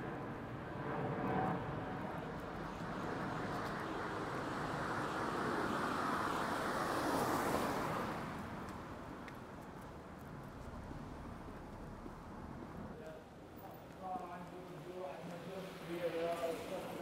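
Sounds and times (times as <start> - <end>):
vehicle passing on wet road: 4.4 - 8.8.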